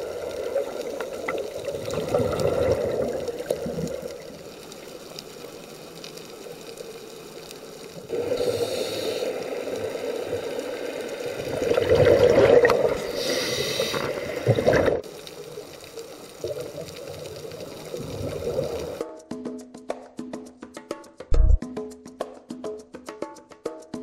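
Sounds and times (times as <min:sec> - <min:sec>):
exhaled bubbles rushing: 0:00.0 - 0:04.4, 0:11.3 - 0:15.1, 0:16.4 - 0:19.0
faint underwater hiss: 0:00.0 - 0:19.0
regulator hissing inhalations: 0:08.1 - 0:11.0, 0:12.9 - 0:14.6.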